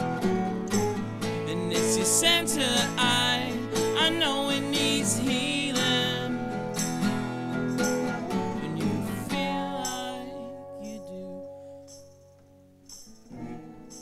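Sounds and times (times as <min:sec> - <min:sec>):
strummed acoustic guitar: 0:00.0 - 0:14.0
person singing: 0:01.4 - 0:12.0.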